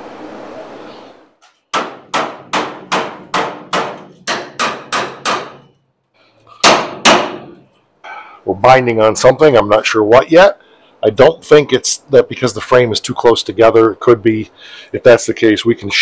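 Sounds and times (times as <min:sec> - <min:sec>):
hammer striking steel: 0:01.7 - 0:05.8, 0:06.6 - 0:07.6.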